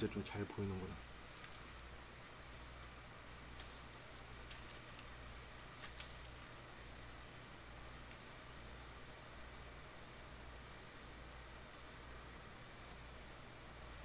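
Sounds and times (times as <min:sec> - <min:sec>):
steady low hum: 0:00.0 - 0:14.0
rustles: 0:01.2 - 0:07.0
faint soft clicks: 0:11.3 - 0:11.5.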